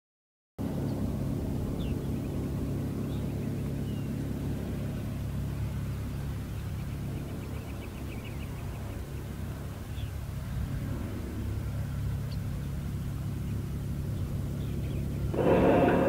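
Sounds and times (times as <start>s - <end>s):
simulated engine idling: 15.2s - 16.0s.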